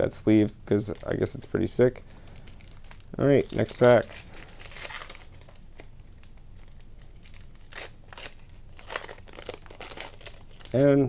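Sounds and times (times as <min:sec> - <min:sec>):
foil wrapper tearing and crinkling: 0:02.3 - 0:11.0.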